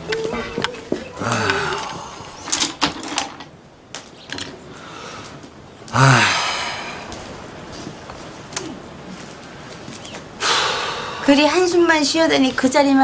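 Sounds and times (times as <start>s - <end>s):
man sighing: 1.1s - 2.5s, 5.9s - 7.2s, 10.4s - 11.2s.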